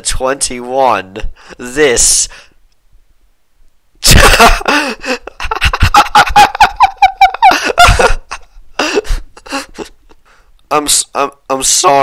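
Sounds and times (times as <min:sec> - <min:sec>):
man laughing: 0:04.0 - 0:10.2.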